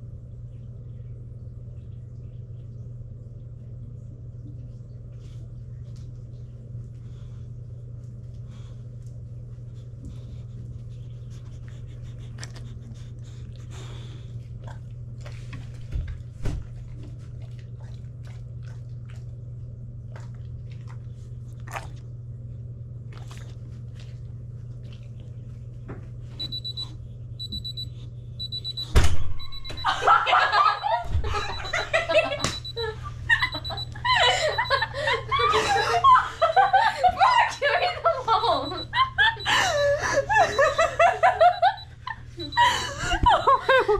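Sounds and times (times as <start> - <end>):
steady low hum: 0.0 - 43.9
digital timer beeping: 26.4 - 29.9, 31.5 - 32.8, 33.5 - 33.9
children laughing: 29.8 - 43.9.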